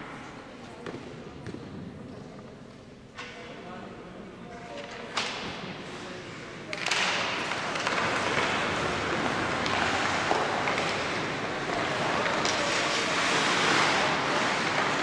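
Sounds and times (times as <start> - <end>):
sticks clacking on puck: 4.5 - 15.0
skates scraping on ice: 6.8 - 15.0.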